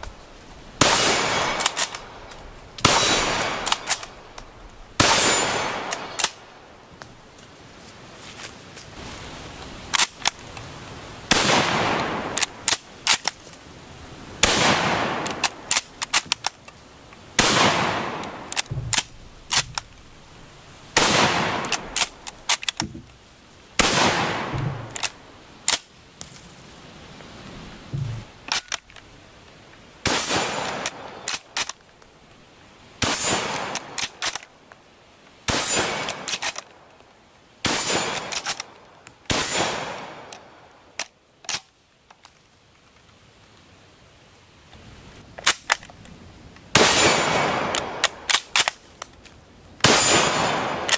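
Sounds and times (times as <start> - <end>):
rifle shots: 0.8 - 2.2, 2.8 - 4.2, 5.0 - 6.5, 11.3 - 13.3, 14.4 - 16.4, 17.4 - 19.9, 21.0 - 22.8, 23.8 - 25.9, 30.0 - 31.7, 33.0 - 34.4, 35.5 - 36.7, 37.6 - 38.7, 39.3 - 40.3, 46.7 - 48.8, 49.8 - 50.9
rifle bolt clicking and clacking: 1.4 - 2.5, 3.4 - 4.5, 5.9 - 6.4, 12.0 - 13.4, 15.2 - 16.8, 18.2 - 20.0, 21.6 - 23.2, 24.6 - 25.9, 28.0 - 29.1, 30.6 - 31.8, 33.5 - 34.5, 36.0 - 36.8, 38.1 - 39.2, 41.0 - 42.3, 45.4 - 46.0, 47.7 - 49.4.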